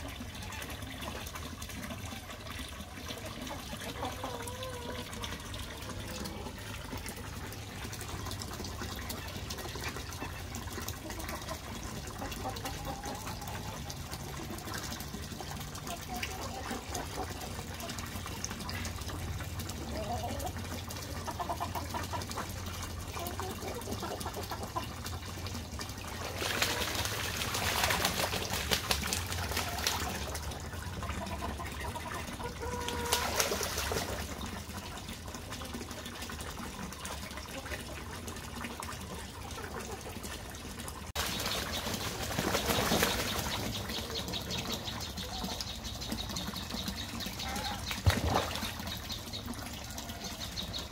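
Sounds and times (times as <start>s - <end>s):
geese splashing: 0.0s - 50.9s.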